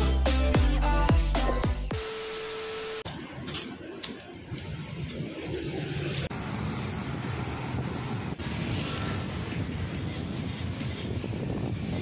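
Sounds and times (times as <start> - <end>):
vehicles passing on road: 3.1 - 12.0.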